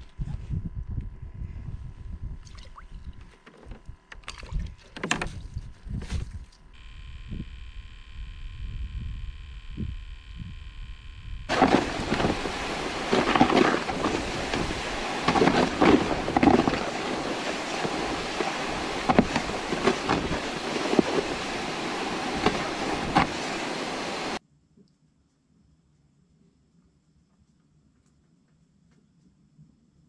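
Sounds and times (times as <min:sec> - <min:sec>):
plastic sled scraping on ice: 0:11.5 - 0:24.4
sled bumping and knocking: 0:11.5 - 0:24.4.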